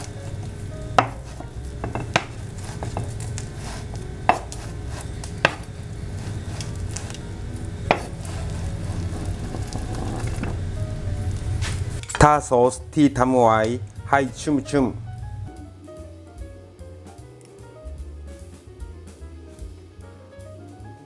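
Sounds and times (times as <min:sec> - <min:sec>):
low steady hum: 0:00.0 - 0:20.3
knife tapping cutting board: 0:00.9 - 0:03.3, 0:04.2 - 0:04.7, 0:05.3 - 0:05.8, 0:07.9 - 0:08.2.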